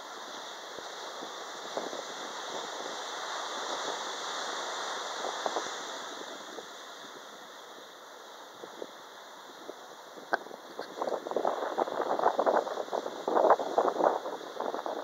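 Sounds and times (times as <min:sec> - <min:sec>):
surf washing: 0:00.0 - 0:15.0
wind: 0:00.0 - 0:15.0
faint crackles: 0:10.1 - 0:15.0.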